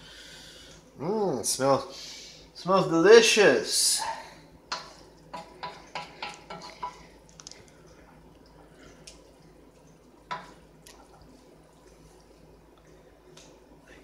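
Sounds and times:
utensils scraping a cooking pot: 0:04.8 - 0:07.0.

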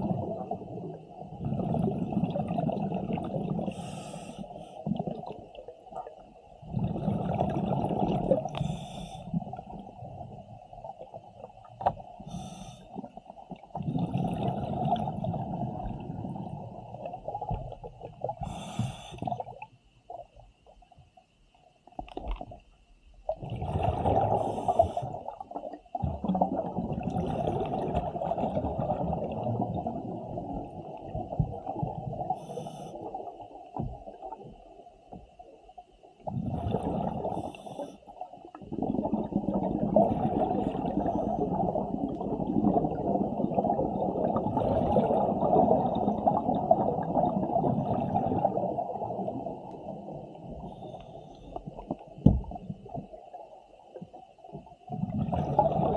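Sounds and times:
exhaled bubbles: 0:00.0 - 0:20.2, 0:23.3 - 0:34.7, 0:36.2 - 0:53.4, 0:54.0 - 0:55.9
scuba regulator breathing: 0:03.7 - 0:04.8, 0:08.5 - 0:09.5, 0:12.2 - 0:13.0, 0:18.4 - 0:19.4, 0:24.3 - 0:25.2, 0:32.3 - 0:33.2, 0:37.2 - 0:38.1.

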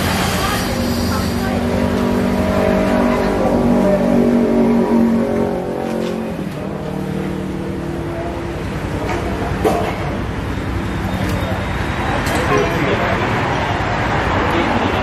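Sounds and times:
traffic noise: 0:00.0 - 0:15.0
vehicle engine running: 0:00.0 - 0:15.0.

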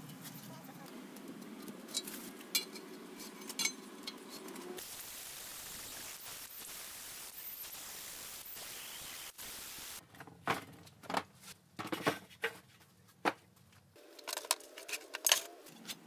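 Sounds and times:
steady hiss: 0:04.1 - 0:10.0.

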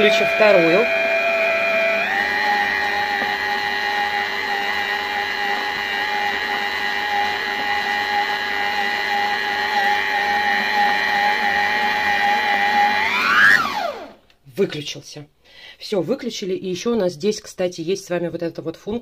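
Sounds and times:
stand mixer motor whining: 0:00.0 - 0:14.2.

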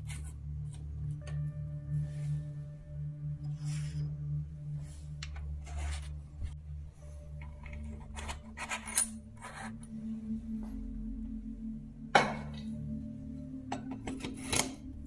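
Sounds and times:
metal bicycle parts clinking: 0:07.4 - 0:09.8.

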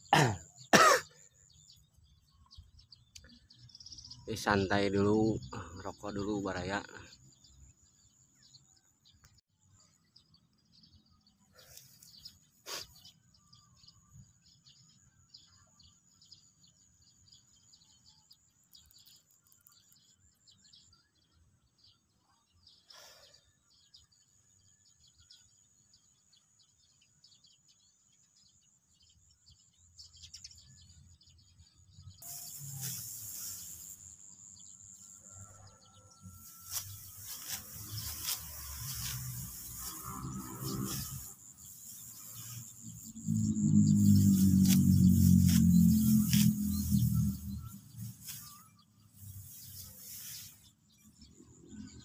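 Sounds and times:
small birds chirping: 0:00.0 - 0:52.0
high insect trill: 0:32.2 - 0:51.1.

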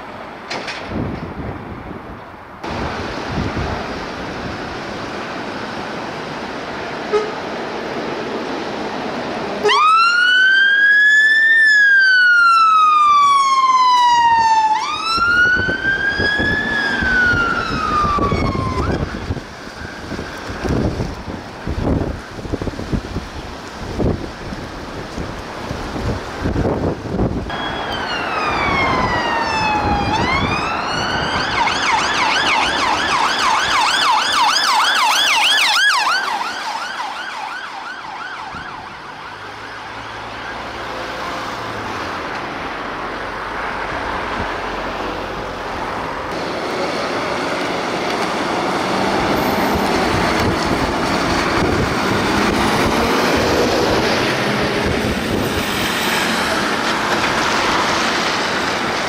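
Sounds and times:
road traffic noise: 0:00.0 - 0:59.0
faint wavering siren: 0:09.6 - 0:20.1, 0:27.5 - 0:40.9
emergency siren wail and yelp: 0:09.6 - 0:23.3, 0:26.4 - 0:59.0.

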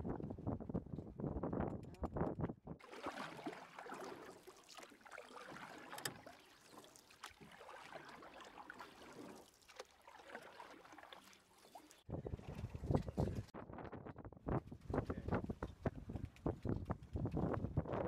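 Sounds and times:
wind on microphone: 0:00.0 - 0:02.8, 0:12.1 - 0:18.0
water splashing along a hull: 0:02.8 - 0:13.5.

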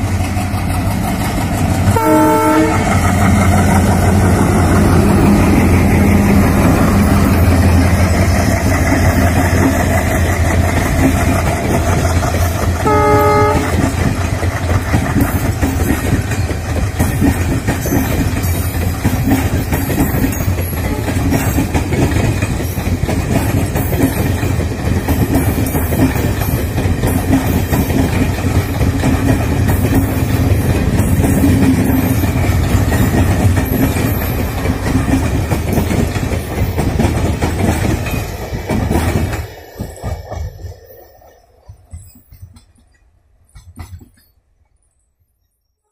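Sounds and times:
train wheels clattering over rail joints: 0:00.0 - 0:44.7
diesel locomotive engine: 0:00.0 - 0:44.8
train horn blast: 0:01.9 - 0:03.0, 0:12.8 - 0:14.0.

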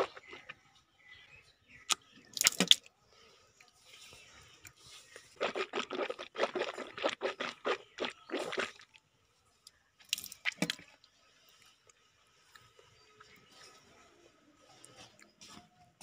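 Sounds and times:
teeth brushing wet scrubbing: 0:05.4 - 0:08.8.

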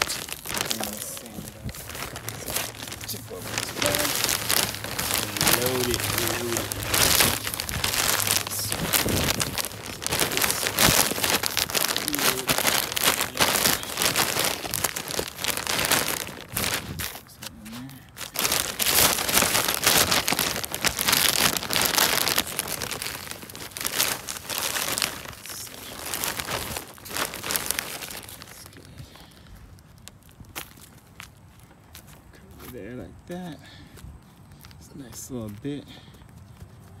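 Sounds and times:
soil pouring: 0:00.0 - 0:16.2
plastic bag crinkling: 0:00.0 - 0:36.7.

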